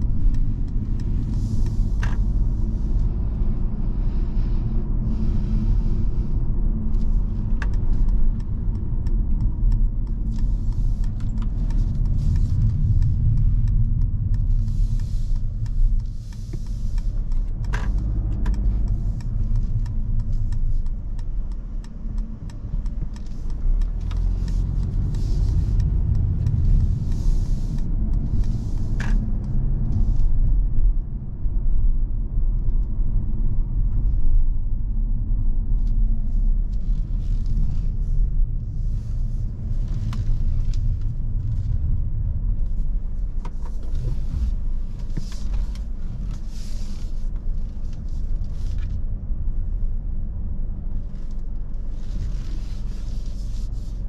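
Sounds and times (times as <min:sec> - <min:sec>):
diesel engine and tyre rumble: 0:00.0 - 0:54.0
light clicks: 0:06.6 - 0:30.9.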